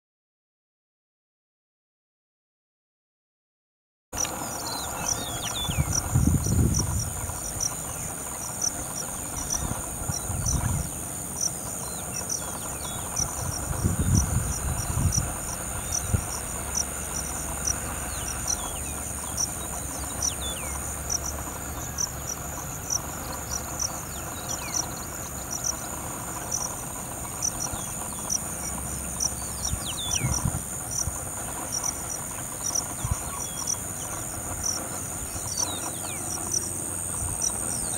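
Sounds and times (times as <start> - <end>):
insects trilling and chirping: 4.2 - 37.9
low rumbles: 4.2 - 37.9.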